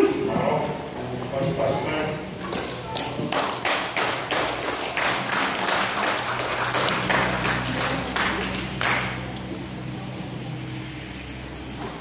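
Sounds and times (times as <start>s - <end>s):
steady low hum: 0.0s - 12.0s
sharp hand claps: 2.5s - 9.2s.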